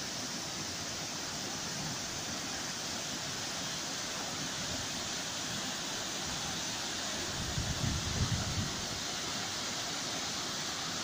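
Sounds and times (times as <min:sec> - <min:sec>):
waterfall rushing: 0:00.0 - 0:11.0
wind buffeting microphone: 0:07.4 - 0:09.0.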